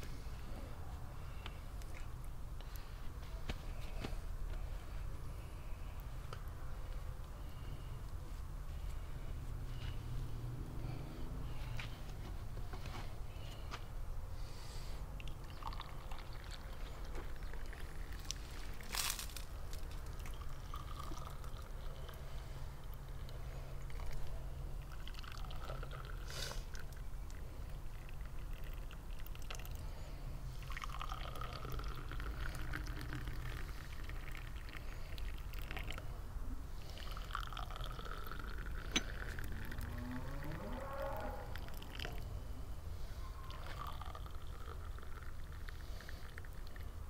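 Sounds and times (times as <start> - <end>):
steady low hum: 0.0 - 47.0
liquid pouring into vessel: 15.2 - 19.0, 20.0 - 29.9, 30.6 - 36.1, 36.8 - 40.0, 41.5 - 42.3, 43.4 - 46.9.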